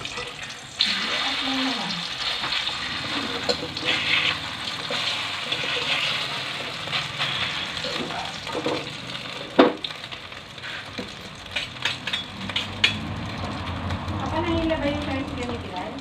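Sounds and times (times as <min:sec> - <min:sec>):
patties sizzling in hot oil: 0:00.0 - 0:16.0
metal spatula scraping: 0:02.2 - 0:08.8, 0:10.6 - 0:13.1
spatula clanking against wok: 0:11.5 - 0:13.6.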